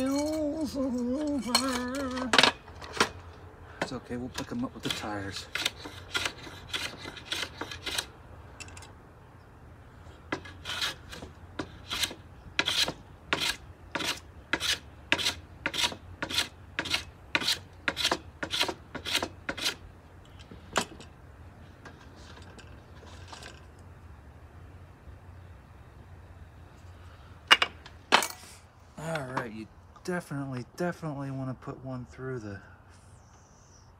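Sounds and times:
hand plane shaving wood: 4.8 - 8.1, 10.4 - 19.8.

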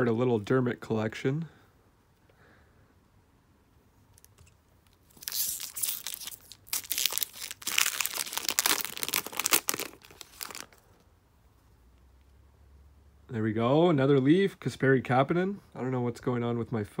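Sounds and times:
foil wrapper tearing and crinkling: 5.1 - 10.8.

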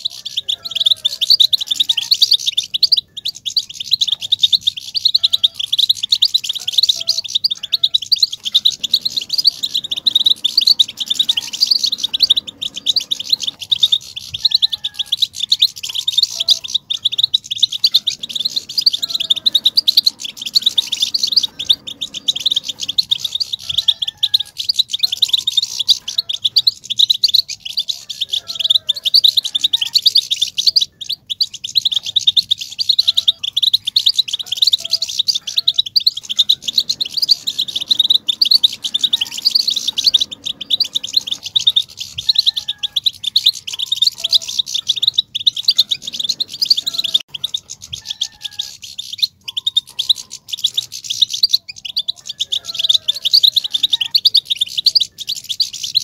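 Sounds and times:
goldfinch twittering: 0.0 - 56.0.

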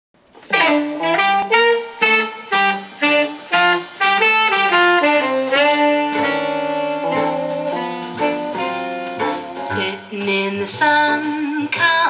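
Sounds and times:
instrumental music from loudspeaker: 0.5 - 12.0.

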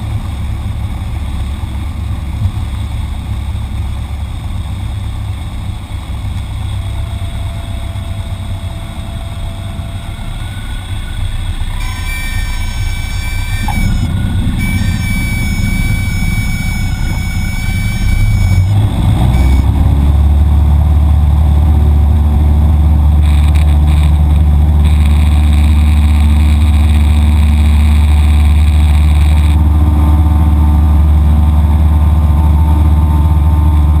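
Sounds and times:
small plane engine droning: 0.0 - 34.0
air noise: 6.2 - 19.9, 22.1 - 29.6
steady high tone: 6.6 - 20.0.

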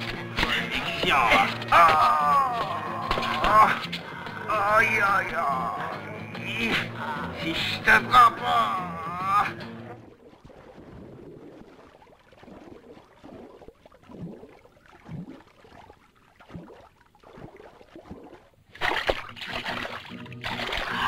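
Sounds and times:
muffled underwater ambience: 9.1 - 15.9
bubbling gurgles: 9.8 - 21.0
swimmer splashing at surface: 17.3 - 21.0.

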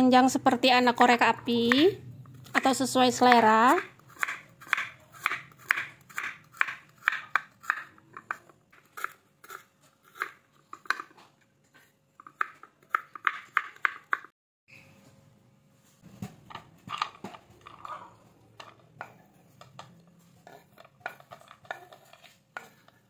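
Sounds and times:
knife chopping carrots on wood: 3.2 - 11.2.

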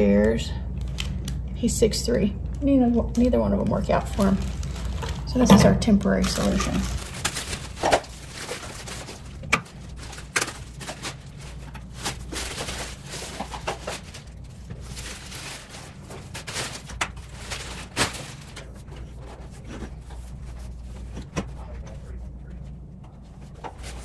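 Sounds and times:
plastic wrapping crinkling: 3.1 - 21.0.

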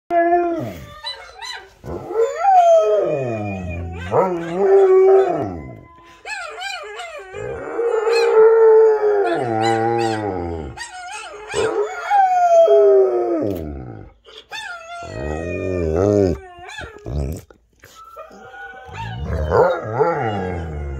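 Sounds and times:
dogs howling on television: 0.1 - 17.4, 18.0 - 20.9
dog howling: 0.1 - 20.9.

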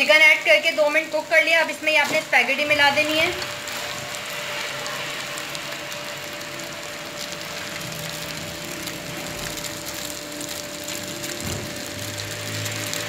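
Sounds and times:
food sizzling in a wok: 0.0 - 13.0.

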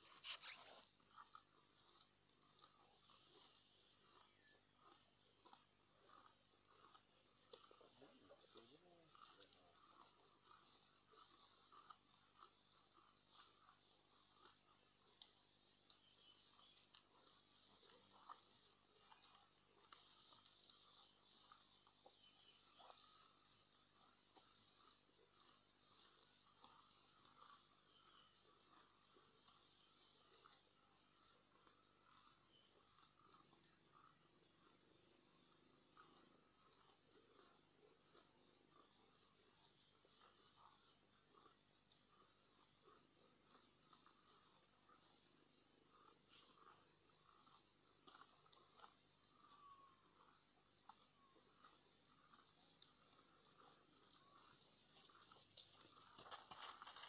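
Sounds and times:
insects chorus: 0.0 - 57.0
soft rustles and ticks: 54.9 - 57.0.

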